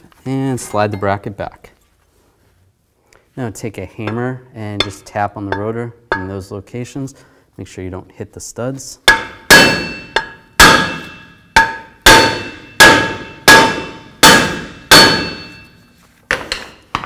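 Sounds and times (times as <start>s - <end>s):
hammer striking metal rotor: 9.1s - 15.7s.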